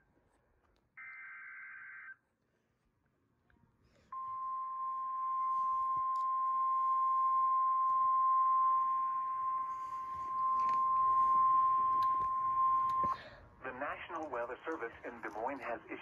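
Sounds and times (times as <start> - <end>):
long steady alarm beep: 1.0 - 2.2, 4.1 - 13.2.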